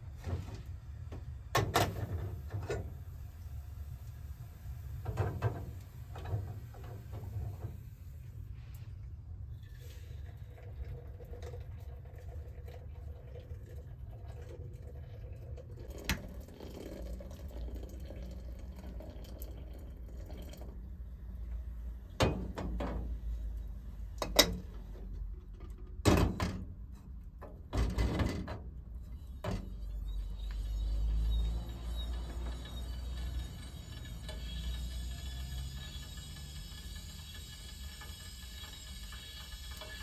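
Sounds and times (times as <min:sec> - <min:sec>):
water pouring into teapot: 0:09.5 - 0:21.2, 0:30.4 - 0:40.0.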